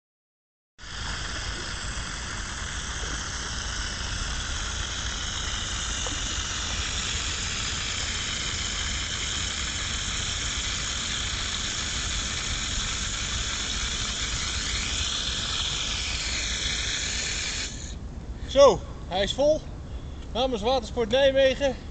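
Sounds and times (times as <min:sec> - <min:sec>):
river water hissing: 0:00.8 - 0:18.0.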